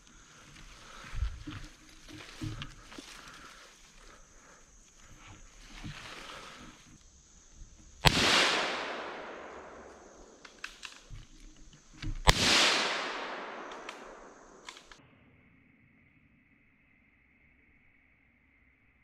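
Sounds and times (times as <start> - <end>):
rifle shot with echo: 8.0 - 10.5, 12.3 - 14.9
small clicks: 10.2 - 12.3, 13.6 - 15.0.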